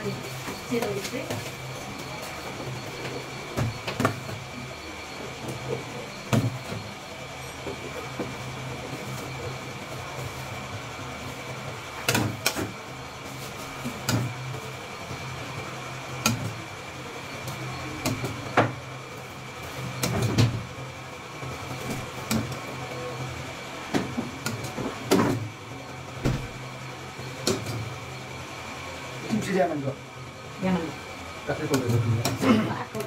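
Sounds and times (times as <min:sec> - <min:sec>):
faint high whine: 0:00.0 - 0:32.8.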